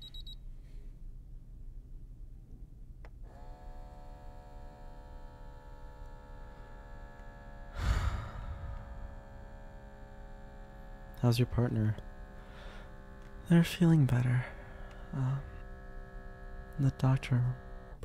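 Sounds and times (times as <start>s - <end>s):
electric hum: 3.2s - 18.0s
person sighing: 7.8s - 9.3s.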